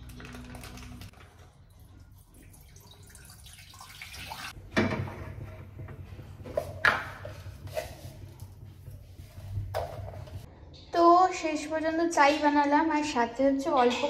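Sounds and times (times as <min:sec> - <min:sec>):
milk pouring into steel pan: 0:00.6 - 0:04.6.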